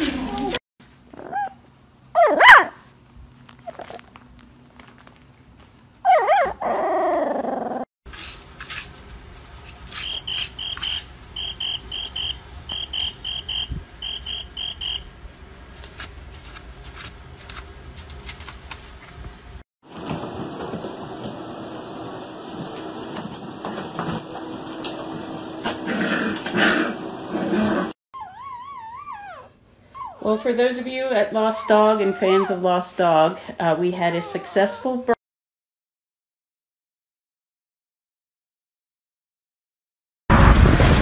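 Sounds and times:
puppy whimpering and yelping: 0.0 - 2.7, 6.0 - 7.8, 28.2 - 30.4, 31.5 - 32.6.

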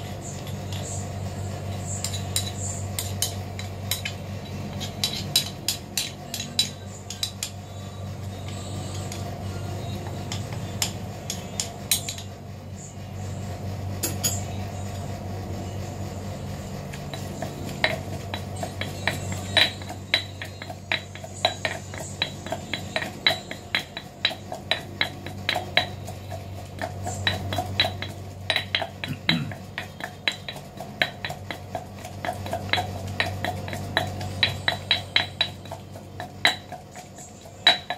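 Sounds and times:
low steady hum: 0.0 - 37.9
metal spoon scraping stone mortar: 2.0 - 7.5
pestle pounding in stone mortar: 17.0 - 37.9.

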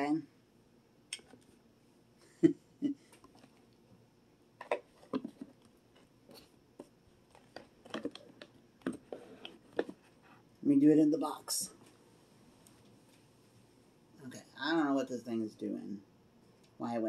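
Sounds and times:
cardboard box rustling: 4.7 - 10.4.

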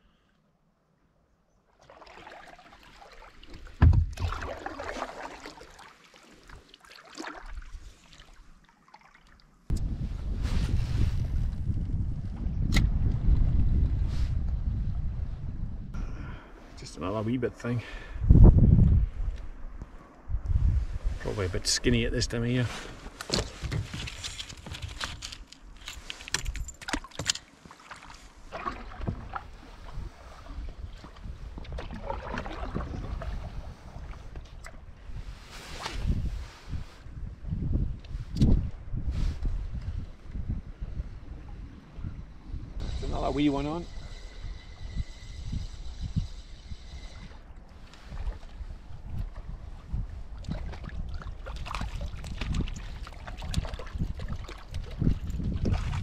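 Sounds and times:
paddle splashing water: 1.8 - 9.6, 26.9 - 34.8, 50.2 - 56.0
sharp knock on canoe: 3.8 - 4.3
gear knocks and clicks in canoe: 23.1 - 33.4, 50.4 - 56.0.

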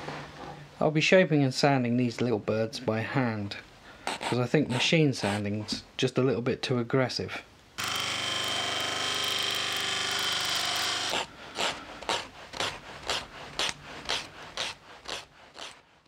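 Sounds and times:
sanding sponge rubbing wood: 4.1 - 5.5, 11.1 - 16.0
disc sander grinding wood: 7.8 - 15.8.

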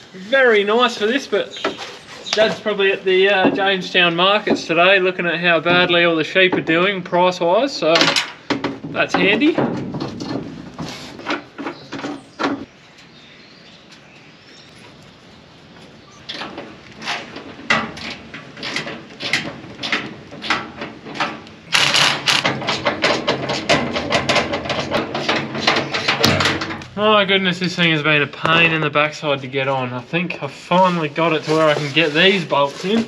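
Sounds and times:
metal knocks clanks and scrapes: 7.8 - 12.7, 16.2 - 27.0.

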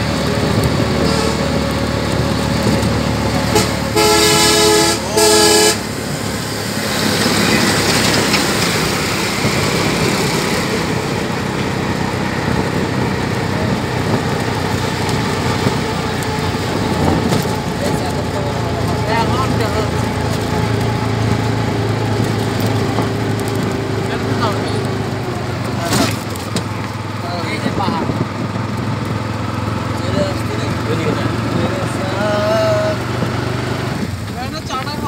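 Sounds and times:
bus passing by: 0.0 - 35.0
vehicle horn blasts: 3.4 - 5.9.

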